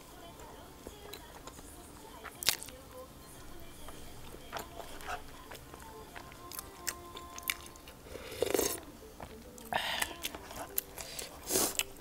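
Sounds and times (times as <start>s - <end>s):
soft background music: 0.0s - 12.0s
chewing mouth clicks and smacks: 1.1s - 2.8s, 4.2s - 12.0s.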